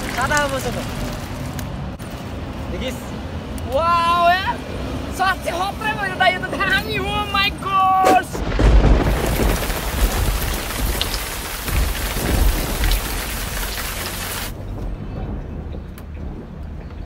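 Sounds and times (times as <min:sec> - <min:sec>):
thunder rumbles: 0:08.2 - 0:17.0
heavy rainfall hiss: 0:08.4 - 0:14.6.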